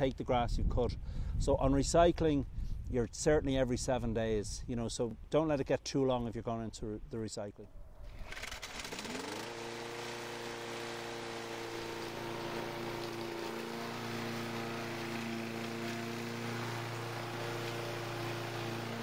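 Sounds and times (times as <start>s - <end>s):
lawn mower engine running: 7.7s - 19.0s.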